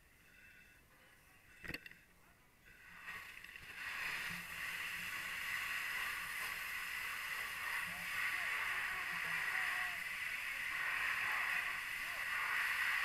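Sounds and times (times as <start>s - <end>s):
water rushing hiss: 2.9s - 13.0s.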